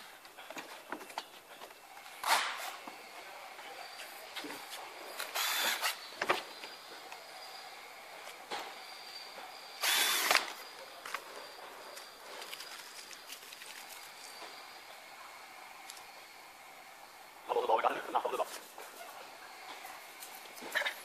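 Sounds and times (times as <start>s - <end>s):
cordless drill running: 5.2s - 6.0s, 9.8s - 10.5s.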